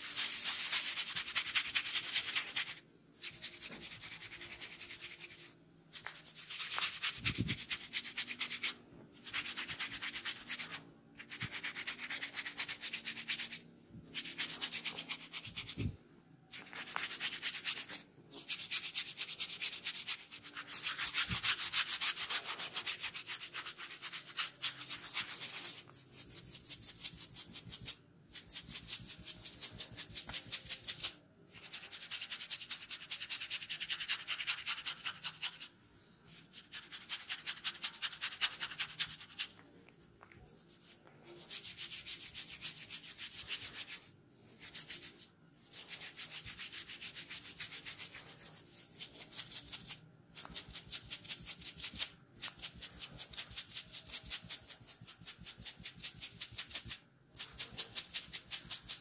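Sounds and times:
fingers rubbing through hair: 36.3 - 39.6, 40.2 - 59.0.

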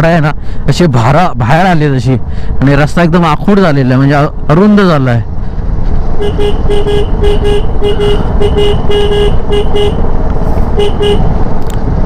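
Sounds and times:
wind noise on microphone: 5.2 - 12.0
motorcycle engine: 5.4 - 12.0
horn short beeps: 6.2 - 10.0.

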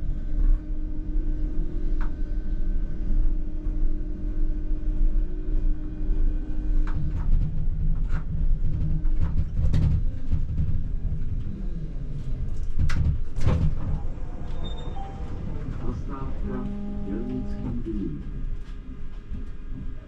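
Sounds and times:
tram wheels rumbling on rails: 6.3 - 20.0
steady whine: 13.8 - 20.0.

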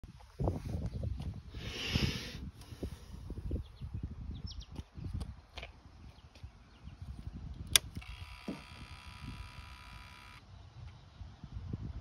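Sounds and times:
electric fuel pump buzzing: 7.6 - 10.4.

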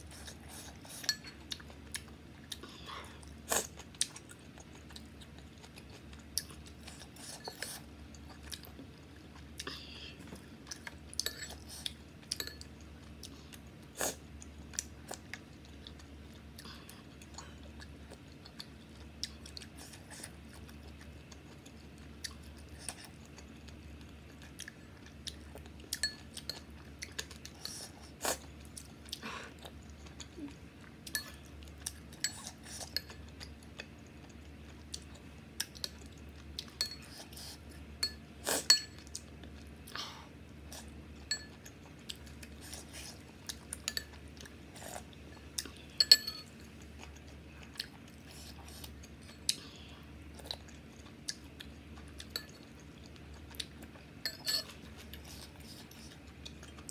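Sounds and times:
chewing: 0.1 - 40.0, 40.6 - 56.9
spoon clinking on ceramic bowl: 46.0 - 46.5, 54.3 - 54.7.

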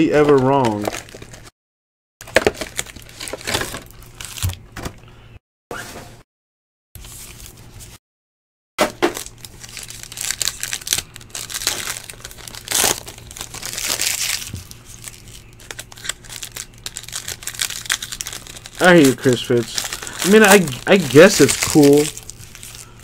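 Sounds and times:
foil wrapper crinkling: 0.2 - 1.5, 9.2 - 23.0.

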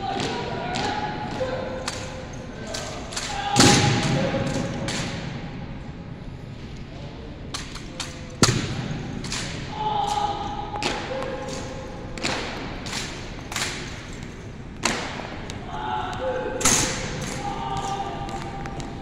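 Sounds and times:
rifles slapped in unison: 10.8 - 14.0.

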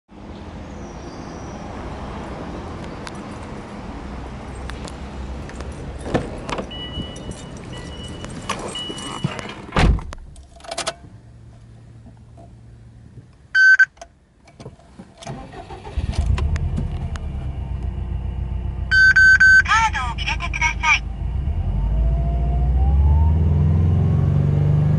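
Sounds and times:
car engine starting and idling: 2.8 - 24.9
handling noises: 4.8 - 15.4
car door shutting: 6.0 - 11.0
short electronic beeps: 13.6 - 13.9, 18.9 - 20.8.

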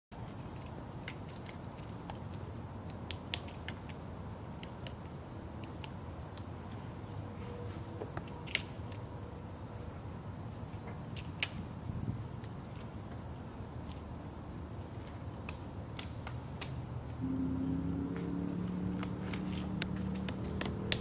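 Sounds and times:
high insect chorus: 0.1 - 21.0
woodpeckers tapping on wood: 19.0 - 21.0.

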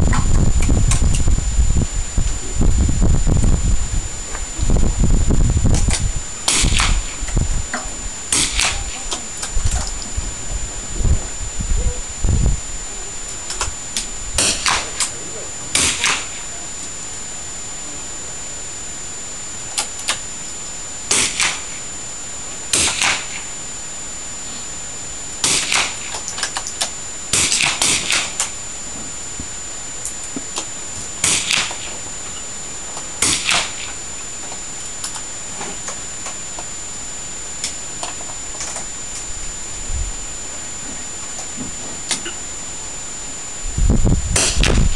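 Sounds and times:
steady hiss: 0.0 - 44.9
rifle shots cracking: 8.3 - 8.8, 14.4 - 15.1, 21.1 - 21.7, 22.7 - 23.4, 25.4 - 26.2, 27.3 - 28.5, 31.2 - 31.9, 33.2 - 33.9.

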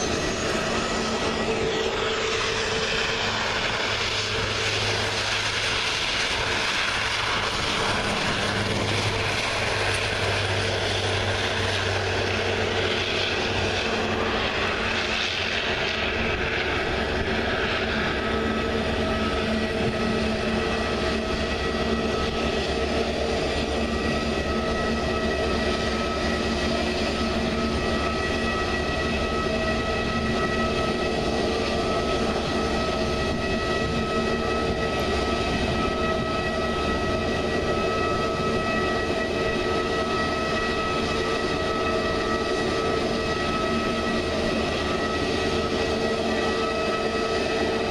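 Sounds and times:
jet engines whining: 0.0 - 47.9
propellers droning: 0.0 - 47.9.

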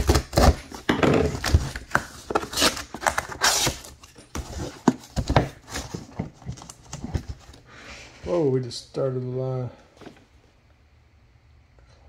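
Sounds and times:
packing tape being slit: 0.0 - 4.8.

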